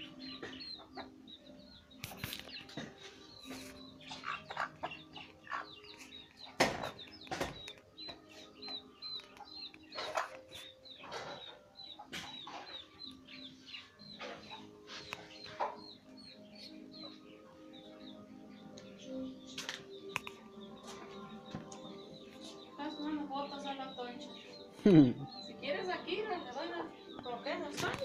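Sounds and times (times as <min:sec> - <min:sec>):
chicks peeping: 0:00.0 - 0:28.0
hen clucking: 0:02.6 - 0:13.1, 0:13.7 - 0:16.4.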